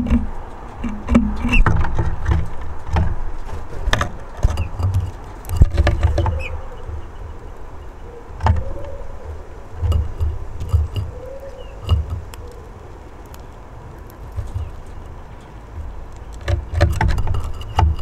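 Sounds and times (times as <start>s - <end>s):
clicks and taps: 0.0s - 3.2s
faint high bird chirps: 5.9s - 9.3s.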